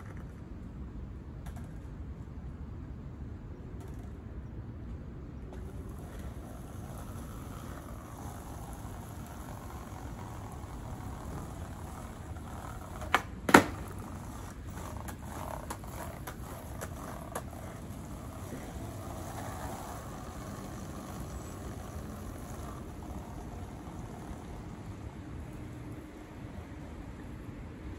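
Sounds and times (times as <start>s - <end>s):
skateboard clicks: 0.0s - 0.5s, 1.4s - 2.0s, 3.7s - 4.3s, 5.4s - 26.2s
background hiss: 5.5s - 27.9s
skateboard landing slap: 12.7s - 17.5s.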